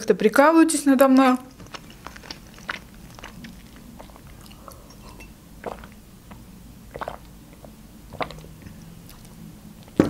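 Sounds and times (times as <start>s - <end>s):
faint steady hum: 0.0s - 10.0s
person swallowing gulps: 1.5s - 9.3s.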